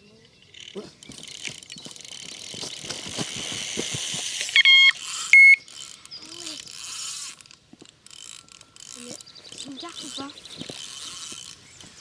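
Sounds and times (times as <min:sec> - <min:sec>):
fishing line peeling off reel: 0:00.6 - 0:12.0
electronic bite alarm beeps: 0:04.6 - 0:05.7.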